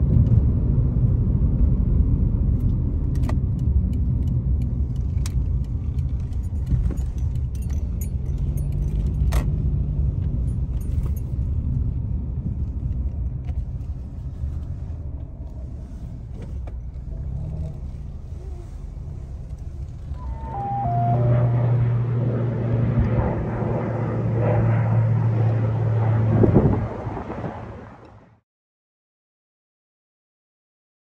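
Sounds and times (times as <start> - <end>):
car engine and tyre rumble: 0.0 - 28.4
small clicks and rattles: 3.1 - 11.5.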